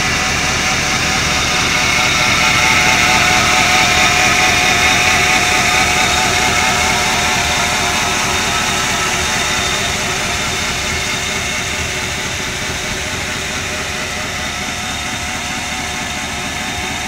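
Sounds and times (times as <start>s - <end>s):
pickup engine idling: 0.0s - 17.0s.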